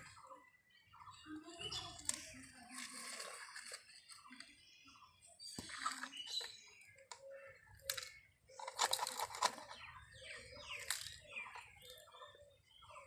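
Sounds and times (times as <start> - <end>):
plastic toy excavator rattling: 5.8 - 12.1.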